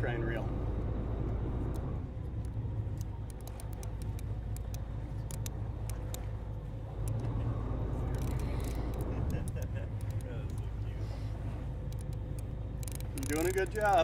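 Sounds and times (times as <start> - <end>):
boat engines rumbling: 0.0 - 14.0
light clicks and ticks: 1.2 - 6.4, 7.0 - 7.4, 8.0 - 10.8, 11.8 - 14.0.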